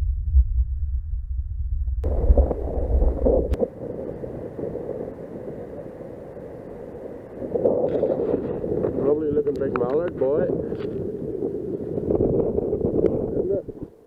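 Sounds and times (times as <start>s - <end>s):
water washing against stony shore: 2.0s - 9.3s
wind buffeting microphone: 2.0s - 14.0s.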